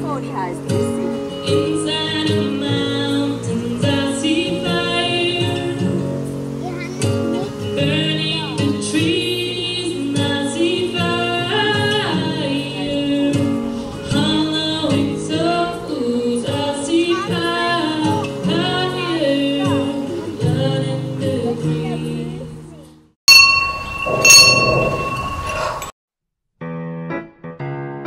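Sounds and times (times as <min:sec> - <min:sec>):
woman singing: 0:01.4 - 0:06.1, 0:07.5 - 0:22.6.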